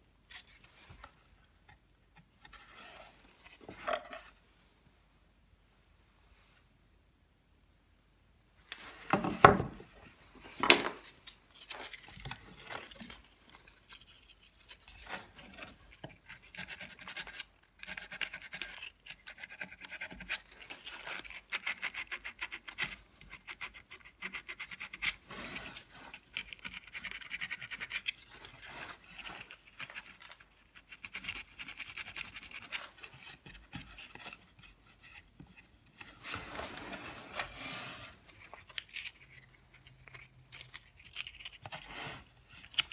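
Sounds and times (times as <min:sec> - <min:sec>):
carving tool scraping wood: 0:11.5 - 0:42.9.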